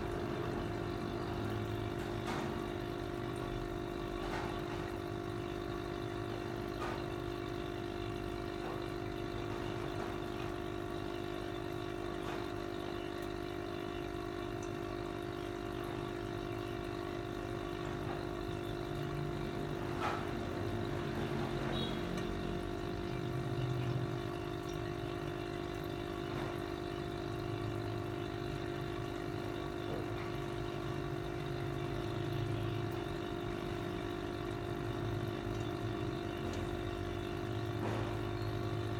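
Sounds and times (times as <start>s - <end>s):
air pump humming: 0.0s - 38.9s.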